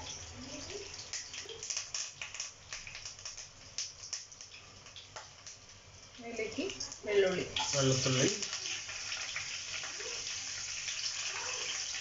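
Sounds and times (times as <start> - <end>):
faint oil sizzle: 0.0 - 12.0
leaves crackling in hot oil: 0.0 - 12.0.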